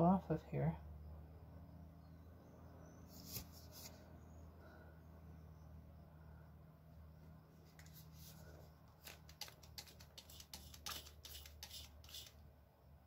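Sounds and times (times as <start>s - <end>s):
spray bottle squirts and clicks: 9.1s - 12.4s.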